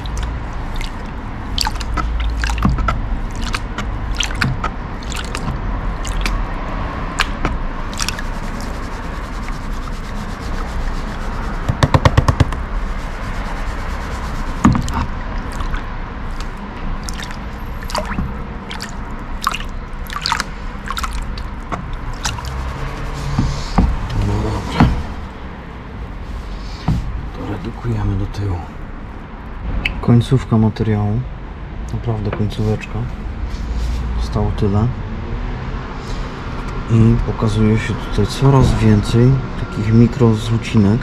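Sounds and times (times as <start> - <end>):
water splashing and dripping: 0.0 - 27.3.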